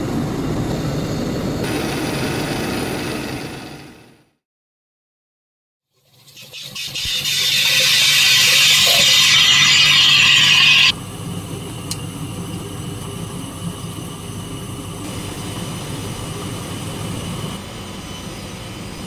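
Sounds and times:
water jet hissing: 6.5 - 10.9.

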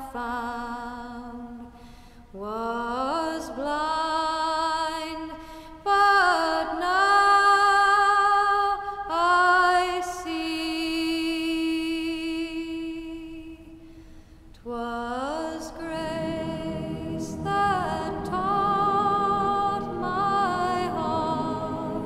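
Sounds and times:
solo voice singing long notes: 14.9 - 22.0.

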